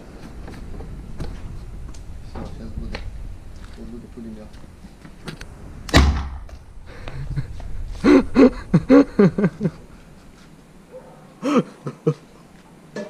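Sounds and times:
potato cannon bang: 0:05.9 - 0:06.4.

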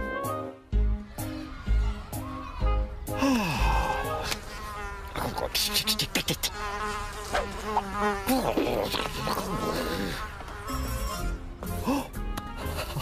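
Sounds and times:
cartoon fly buzzing: 0:03.6 - 0:11.8.

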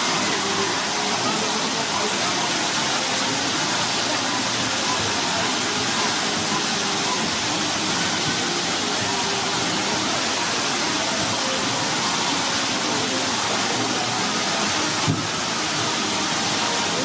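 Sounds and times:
faint voices: 0:00.0 - 0:17.0
flowing water rushing: 0:00.0 - 0:17.0.

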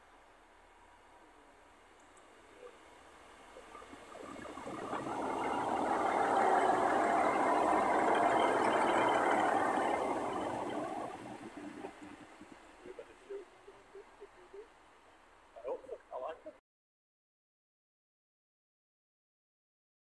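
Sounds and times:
train diesel engines: 0:04.1 - 0:13.4.

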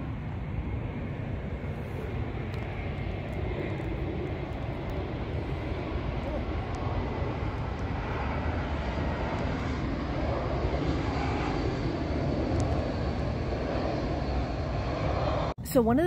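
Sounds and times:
jet engine rumble: 0:00.0 - 0:16.0.

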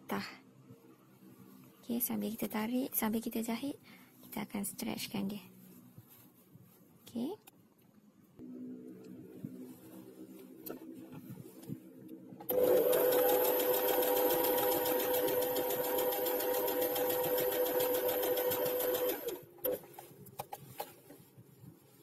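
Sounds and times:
sewing machine stitching: 0:12.5 - 0:21.0.

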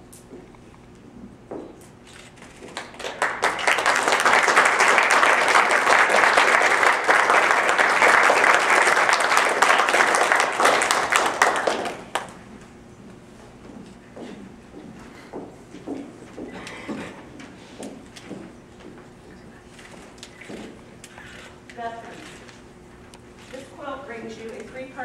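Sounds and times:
audience applauding: 0:02.7 - 0:12.5.

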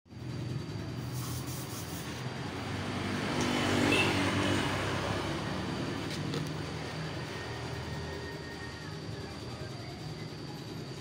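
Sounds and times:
vehicle engine passing by: 0:00.1 - 0:08.8.

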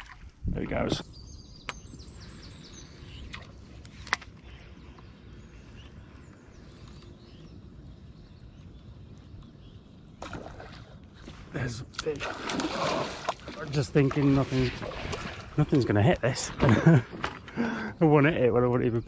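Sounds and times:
faint bird chirps: 0:00.8 - 0:10.1.

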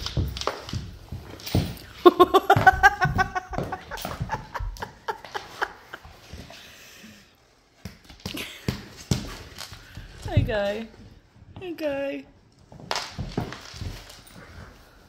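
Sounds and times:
scuffling on wooden floor: 0:00.0 - 0:06.8
man laughing: 0:02.0 - 0:06.2.

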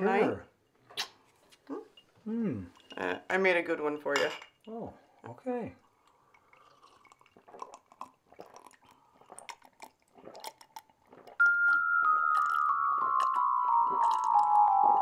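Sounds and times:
people gulping and swallowing: 0:04.7 - 0:15.0
bell-like mallet notes: 0:11.4 - 0:15.0.

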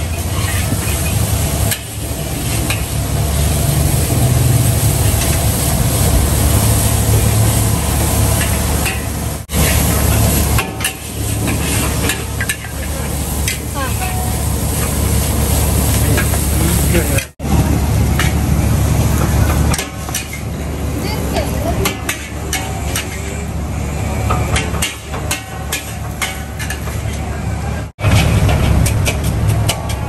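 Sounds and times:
noodles sizzling in a wok: 0:00.0 - 0:17.2
ladle scraping wok: 0:00.0 - 0:17.4, 0:21.7 - 0:27.4
gas burner rumble: 0:00.0 - 0:30.0.

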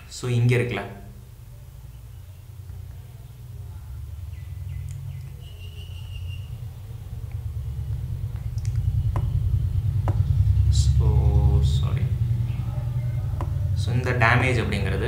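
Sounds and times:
low background rumble: 0:00.0 - 0:15.0
sharp clicks: 0:08.3 - 0:09.3.

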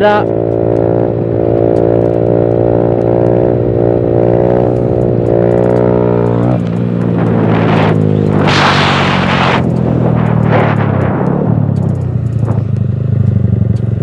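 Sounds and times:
motorcycle engine revving: 0:00.0 - 0:14.0.

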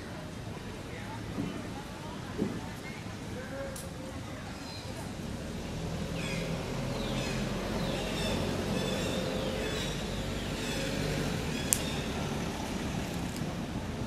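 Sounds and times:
low engine hum: 0:04.9 - 0:14.0.

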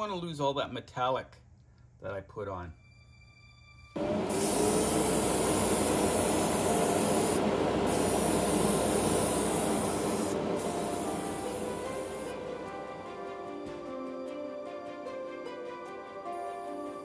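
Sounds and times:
airbrush spraying hiss: 0:04.0 - 0:13.2.

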